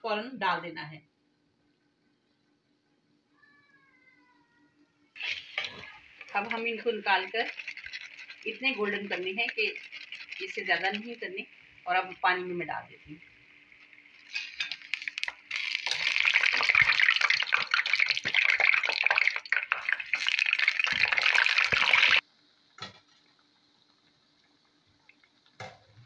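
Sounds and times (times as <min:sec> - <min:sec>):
splashing and crackling sizzle: 0:05.2 - 0:25.9.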